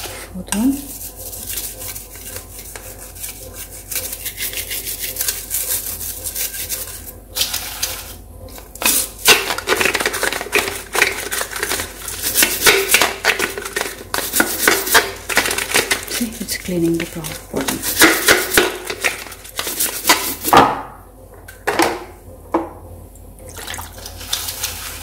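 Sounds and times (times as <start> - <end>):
bottle brush scrubbing bottle: 0.8 - 7.1.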